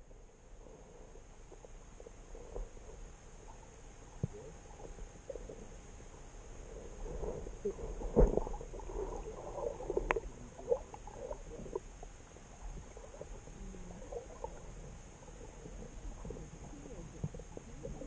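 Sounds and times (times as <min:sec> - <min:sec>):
muffled underwater knocks and clicks: 0:07.3 - 0:12.0, 0:15.6 - 0:18.0.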